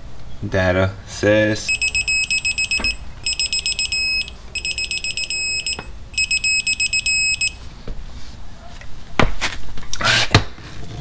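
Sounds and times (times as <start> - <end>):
torque wrench rapid beeps: 1.7 - 7.6.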